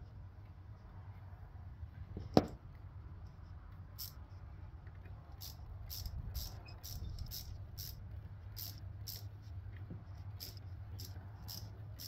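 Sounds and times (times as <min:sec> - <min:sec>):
ratchet wrench clicking: 0:04.0 - 0:04.2, 0:05.4 - 0:09.3, 0:10.2 - 0:12.0.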